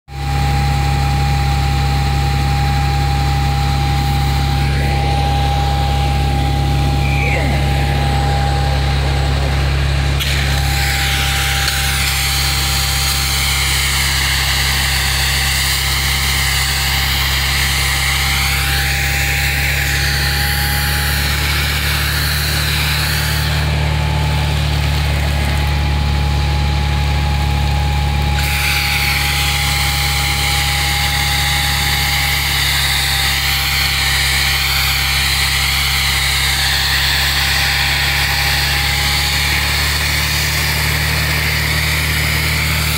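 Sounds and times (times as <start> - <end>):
fire truck engine running: 0.1 - 42.9
steady high whine: 0.4 - 28.4.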